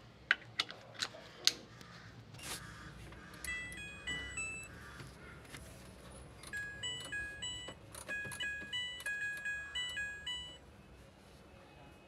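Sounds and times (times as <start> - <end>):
electronic beeping melody: 3.4 - 4.8, 6.5 - 10.6.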